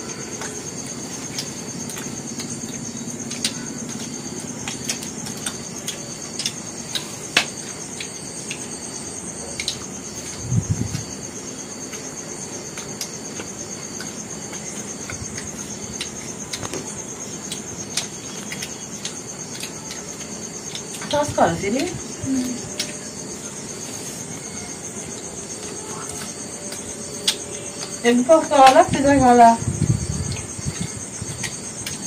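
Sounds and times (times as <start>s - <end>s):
cricket trilling: 0.0s - 32.0s
eating clicks and crackles: 0.4s - 8.8s, 11.8s - 23.8s, 30.1s - 32.0s.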